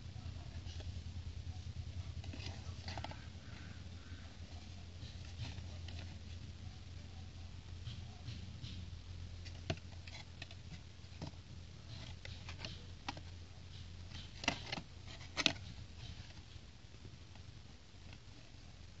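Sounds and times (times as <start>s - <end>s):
fingers tapping on cardboard: 7.8s - 16.6s.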